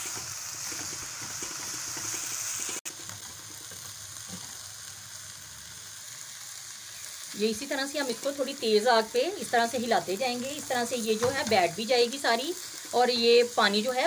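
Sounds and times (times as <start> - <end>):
spatula stirring in pan: 0.0 - 4.7, 10.6 - 13.5
leaves sizzling in hot oil: 0.0 - 14.0.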